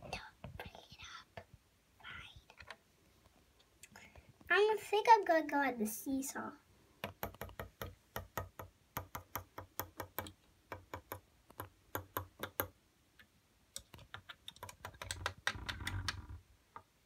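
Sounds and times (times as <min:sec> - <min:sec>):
plastic toy clicking on table: 0:13.8 - 0:16.2.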